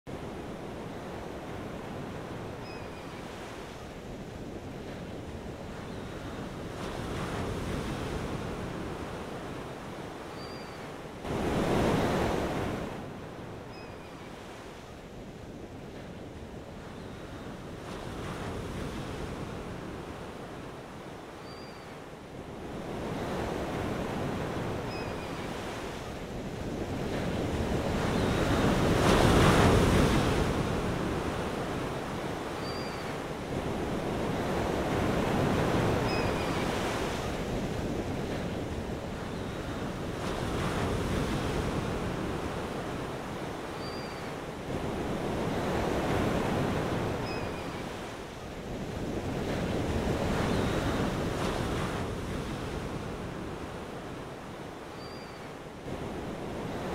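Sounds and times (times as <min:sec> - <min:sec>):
ocean waves rushing: 0:11.1 - 0:13.6.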